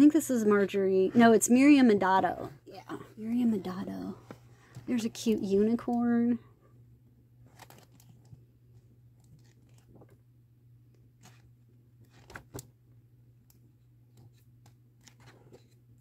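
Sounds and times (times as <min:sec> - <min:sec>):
book pages turning: 0:07.5 - 0:08.4, 0:09.2 - 0:10.2, 0:11.2 - 0:12.7, 0:14.1 - 0:15.8.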